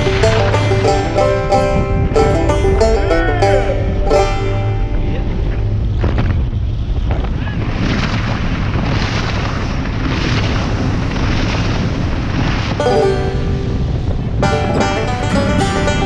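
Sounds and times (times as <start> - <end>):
motorboat engine rumble: 0.0 - 16.0
wind buffeting microphone: 0.0 - 16.0.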